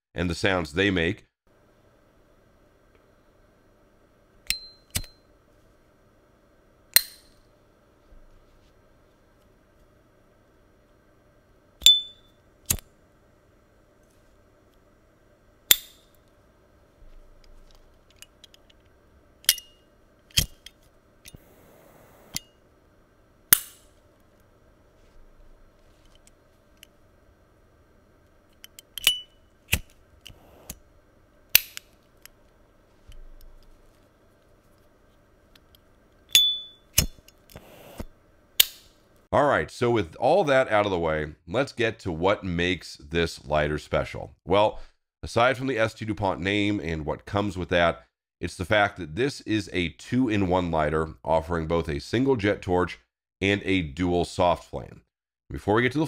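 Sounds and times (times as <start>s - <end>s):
lighter click: 4.5s - 5.2s
lighter lid ping: 4.5s - 5.2s
lighter lid ringing ping: 4.5s - 5.2s, 11.8s - 12.4s, 36.3s - 37.1s.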